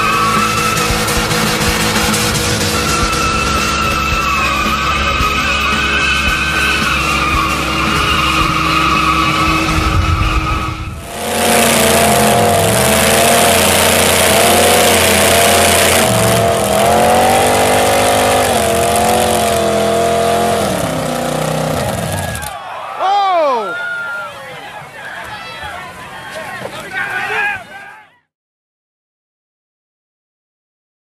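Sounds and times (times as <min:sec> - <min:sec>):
tractor engine running: 0:00.0 - 0:22.6
truck engines at full throttle: 0:00.0 - 0:23.6.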